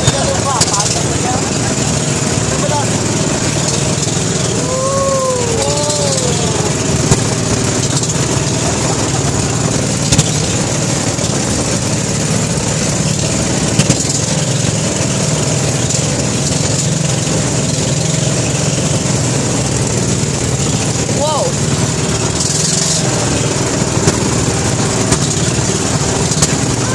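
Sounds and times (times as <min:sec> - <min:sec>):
boat engine running: 0:00.0 - 0:26.9
sharp knocks: 0:06.9 - 0:08.6.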